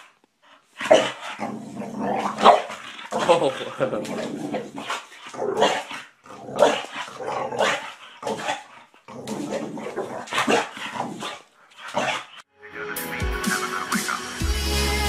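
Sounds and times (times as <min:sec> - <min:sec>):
dog barking: 0:00.8 - 0:01.3, 0:02.3 - 0:03.4, 0:10.3 - 0:12.3.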